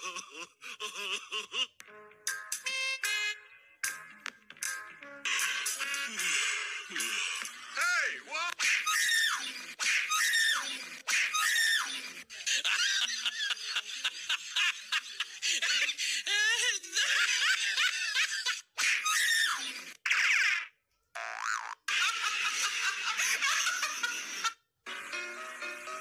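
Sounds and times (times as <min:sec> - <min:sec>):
people laughing and shrieking: 0:06.9 - 0:20.0.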